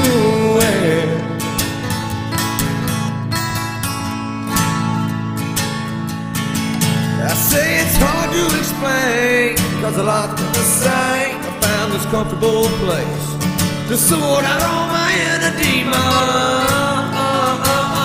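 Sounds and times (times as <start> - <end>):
man singing: 0.0 - 1.9, 7.2 - 18.0
acoustic guitar strumming: 0.0 - 18.0.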